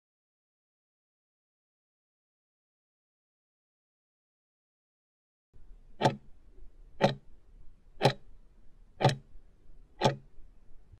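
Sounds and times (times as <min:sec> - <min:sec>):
clock-like timer ticks: 0:05.9 - 0:07.3, 0:08.0 - 0:08.3, 0:09.0 - 0:09.4, 0:10.0 - 0:10.4.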